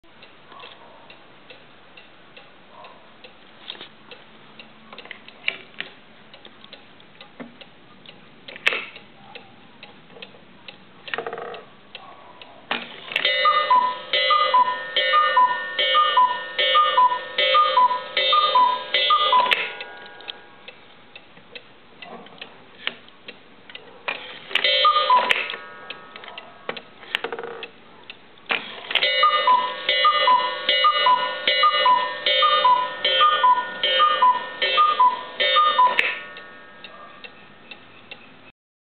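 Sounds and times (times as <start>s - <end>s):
clock pendulum ticking: 0.0s - 3.4s, 4.0s - 12.5s, 13.2s - 28.4s, 29.0s - 38.5s
cuckoo clock calls: 13.2s - 19.9s, 24.6s - 27.7s, 28.9s - 38.5s.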